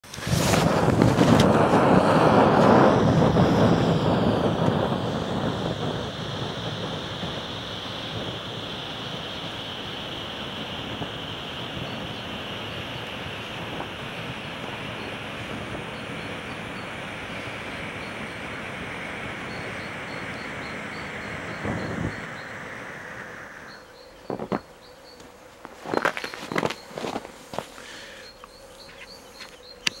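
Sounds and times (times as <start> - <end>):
sharp crackles: 0.0 - 2.8, 23.8 - 30.0
firework fountain hissing: 0.0 - 24.7
faint high chirps: 14.4 - 25.3, 27.9 - 30.0
footsteps crunching in snow: 24.3 - 29.6.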